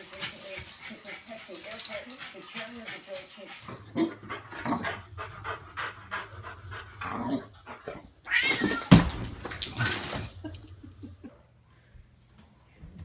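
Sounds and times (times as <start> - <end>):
cat yowling and hissing: 8.3 - 8.9.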